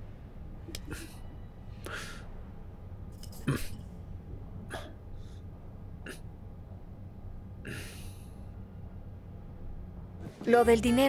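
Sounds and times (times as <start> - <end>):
low steady hum: 0.0 - 11.0
soft breaths: 0.7 - 2.5, 4.7 - 5.7.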